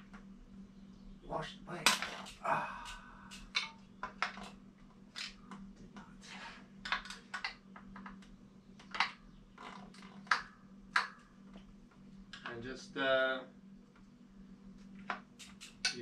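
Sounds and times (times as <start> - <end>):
faint hum: 0.0 - 16.0
metal tools clicking: 1.9 - 4.6.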